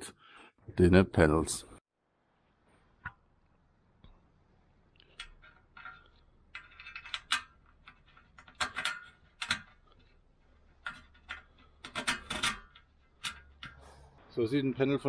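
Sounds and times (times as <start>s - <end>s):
small metallic clicks and scraping: 4.9s - 14.2s.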